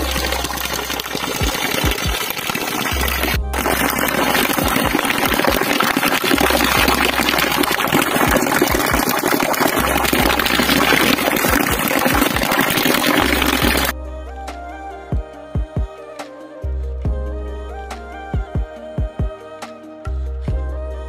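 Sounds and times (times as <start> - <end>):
water splashing into pool: 0.0 - 13.9.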